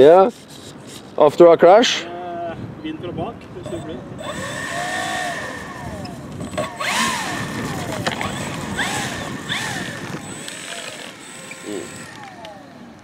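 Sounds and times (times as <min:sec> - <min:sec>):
rc plane motor whining: 0:03.7 - 0:13.0.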